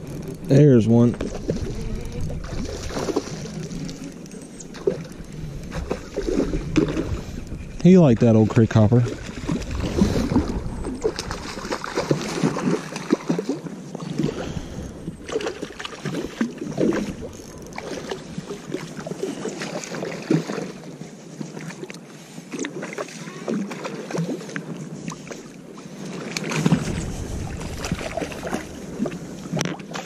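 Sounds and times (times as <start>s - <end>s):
fish splashing at water surface: 2.4s - 4.1s.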